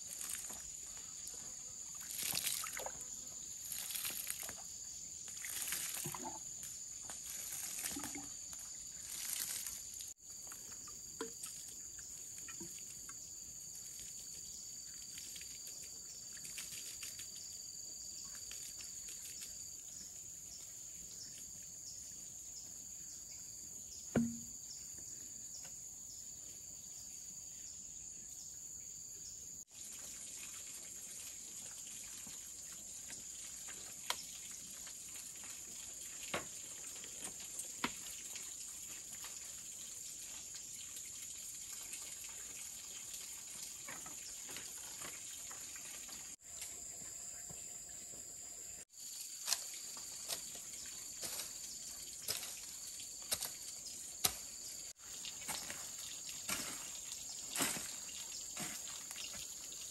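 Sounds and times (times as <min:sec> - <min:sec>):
water splashing onto ground: 0:00.0 - 0:10.2, 0:14.9 - 0:17.4, 0:29.7 - 0:46.4, 0:49.0 - 0:59.9
sharp knock: 0:24.1 - 0:24.5.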